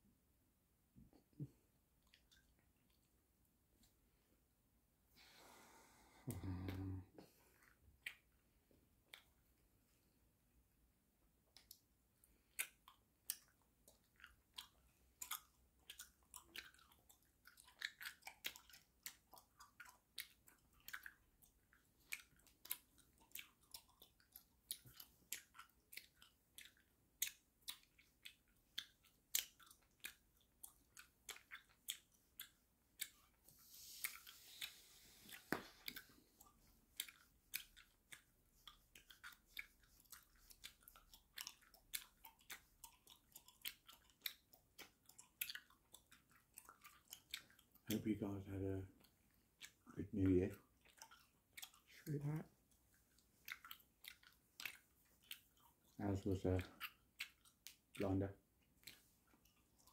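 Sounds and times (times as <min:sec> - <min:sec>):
gum chewing smacks: 0:01.0 - 0:03.2, 0:06.1 - 0:09.6, 0:11.4 - 0:59.9
soft breathy hiss: 0:05.1 - 0:07.8, 0:33.4 - 0:36.4.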